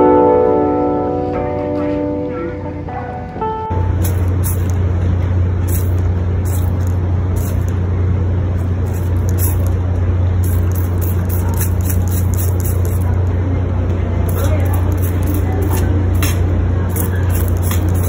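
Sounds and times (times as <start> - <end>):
loud low rumble: 3.6 - 18.0.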